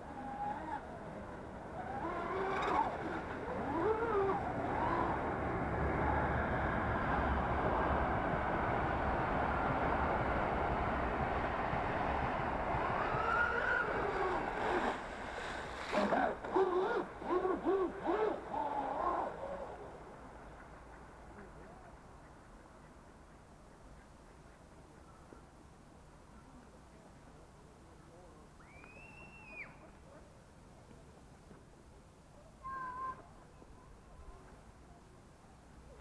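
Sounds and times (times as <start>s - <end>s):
speed boat motor and spray: 0.0s - 20.6s.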